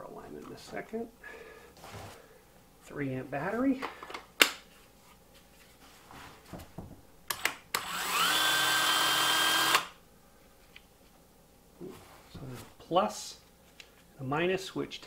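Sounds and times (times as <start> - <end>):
belt sander motor whine: 7.8 - 9.9.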